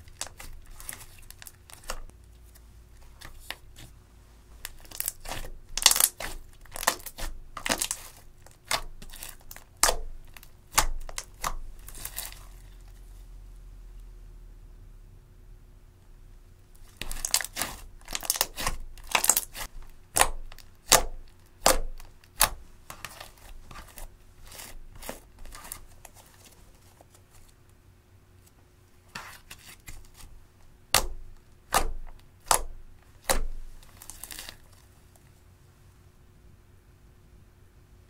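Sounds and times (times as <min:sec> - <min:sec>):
slime crackling and popping: 0:00.0 - 0:02.1, 0:04.6 - 0:12.7, 0:16.8 - 0:26.2, 0:30.9 - 0:34.8.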